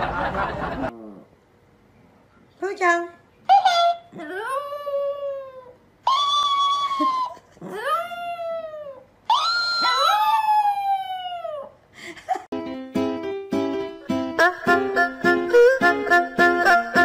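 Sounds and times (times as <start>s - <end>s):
dog howling: 4.2s - 11.7s.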